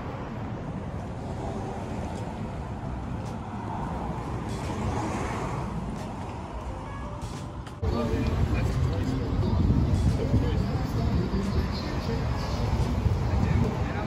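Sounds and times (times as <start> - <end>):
road traffic hum: 0.0 - 14.0.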